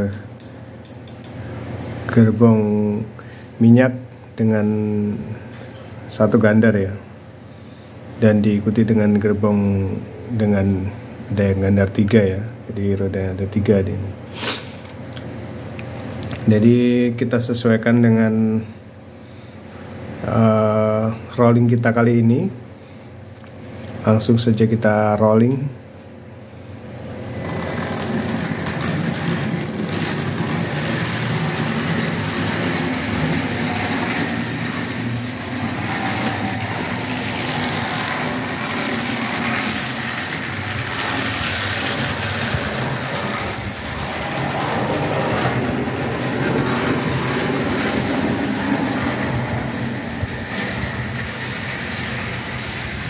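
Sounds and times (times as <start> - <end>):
thin high whine: 26.7 - 53.0
small wheels rumbling on rails: 27.4 - 53.0.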